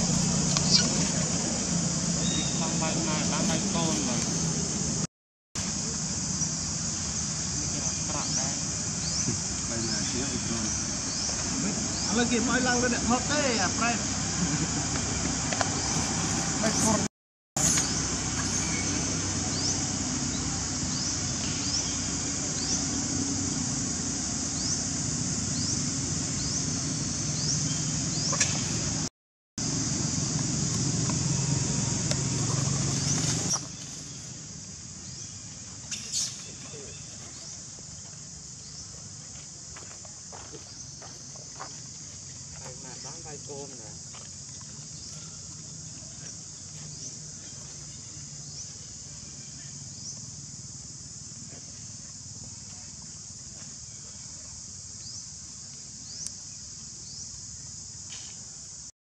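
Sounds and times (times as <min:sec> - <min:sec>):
high-pitched insect drone: 0:17.6 - 0:29.0, 0:29.6 - 0:58.9.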